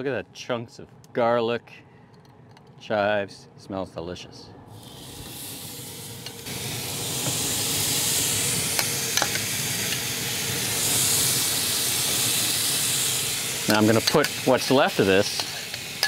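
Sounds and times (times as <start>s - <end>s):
chicken sizzling on grill: 4.7s - 16.0s
tongs clicking on grate: 13.7s - 15.8s.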